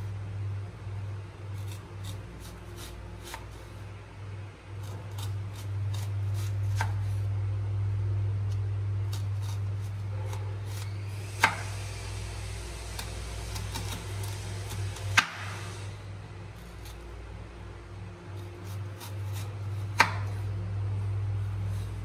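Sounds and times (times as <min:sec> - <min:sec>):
knife slicing onion: 0:01.4 - 0:03.8, 0:04.7 - 0:07.4, 0:08.4 - 0:12.0, 0:12.7 - 0:17.2, 0:18.2 - 0:20.6, 0:21.3 - 0:22.0.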